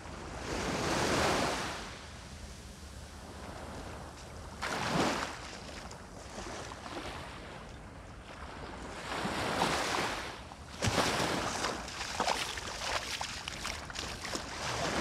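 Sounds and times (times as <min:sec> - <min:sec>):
waves washing up sandy shore: 0:08.4 - 0:15.0.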